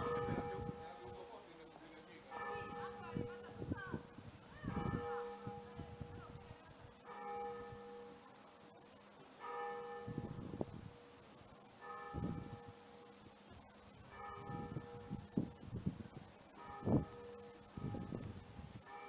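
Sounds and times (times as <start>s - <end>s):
church bell tolling: 0.0s - 1.5s, 2.3s - 4.1s, 4.7s - 6.4s, 7.0s - 8.2s, 9.4s - 10.8s, 11.8s - 13.2s, 14.1s - 15.4s, 16.6s - 18.3s.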